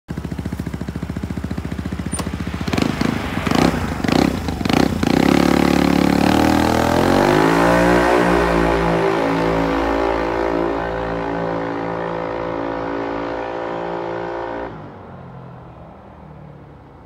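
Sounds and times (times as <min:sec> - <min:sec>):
scooter engine idling: 0:00.1 - 0:06.3
scooter engine revving: 0:00.1 - 0:14.7
scooter accelerating away: 0:00.1 - 0:15.6.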